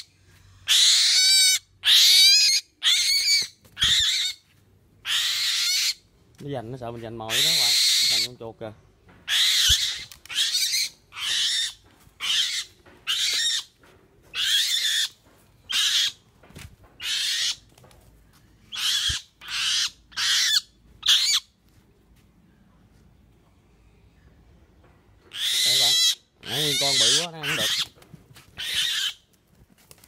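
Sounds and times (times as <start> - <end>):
bird giving shrill hoarse screeches: 0.6 - 4.4, 5.0 - 6.0, 7.3 - 8.3, 9.3 - 13.7, 18.7 - 21.5, 25.3 - 27.9.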